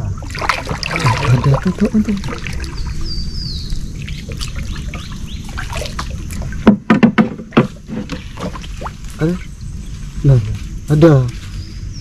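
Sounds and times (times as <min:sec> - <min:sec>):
paddling water: 0:00.0 - 0:10.7
bird whistling: 0:02.5 - 0:05.5
paddle knocking on wooden boat: 0:06.4 - 0:08.6
knocks against boat hull: 0:06.6 - 0:08.5.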